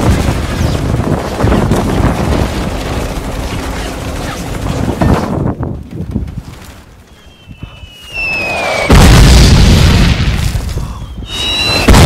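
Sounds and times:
rapid machine-gun fire: 0.0s - 5.4s.

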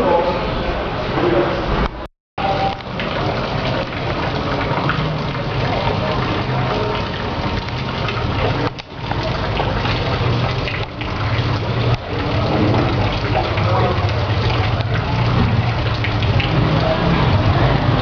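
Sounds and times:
indistinct voices: 0.0s - 18.0s.

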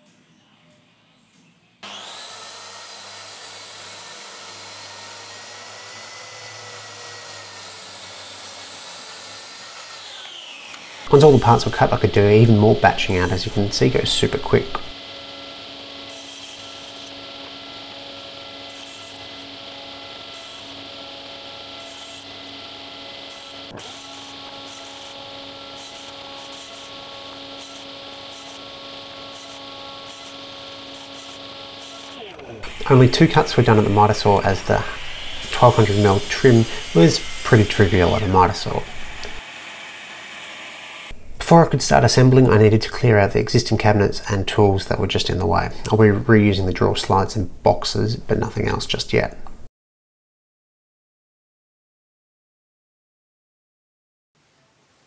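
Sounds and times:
track saw cutting: 1.8s - 44.2s.

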